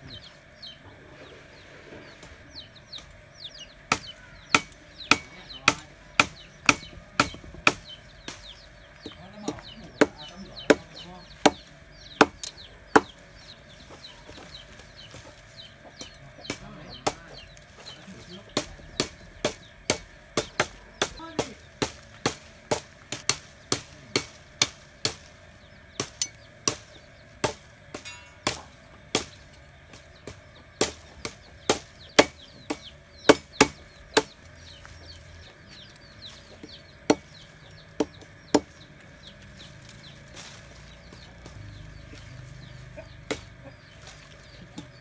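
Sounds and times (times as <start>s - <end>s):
chickens clucking: 0.0s - 45.0s
machete chopping branch on log: 3.9s - 13.2s, 16.0s - 25.3s, 25.9s - 34.8s, 36.5s - 37.4s.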